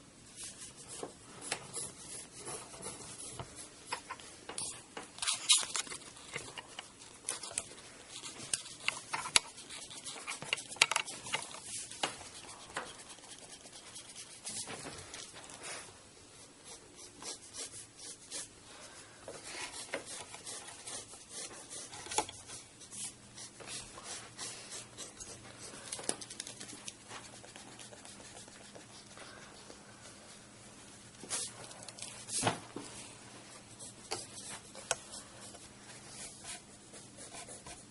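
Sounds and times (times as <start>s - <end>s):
pencil scratching on paper: 0.4s - 4.0s, 7.6s - 14.7s, 16.6s - 18.5s, 19.4s - 30.4s, 33.6s - 37.9s.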